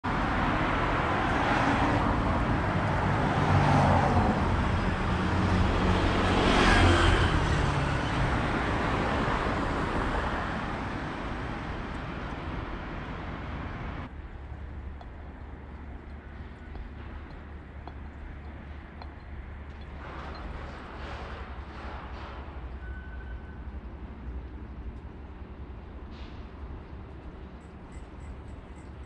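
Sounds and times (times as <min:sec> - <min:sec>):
cars passing close by: 0:00.1 - 0:23.0.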